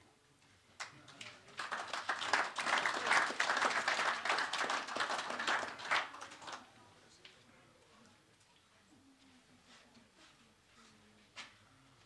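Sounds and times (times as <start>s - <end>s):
audience applauding: 0.8s - 6.6s.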